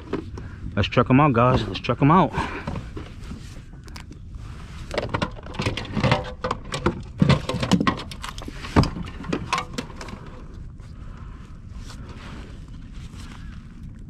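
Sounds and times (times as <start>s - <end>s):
plastic gear clattering: 4.9s - 10.4s.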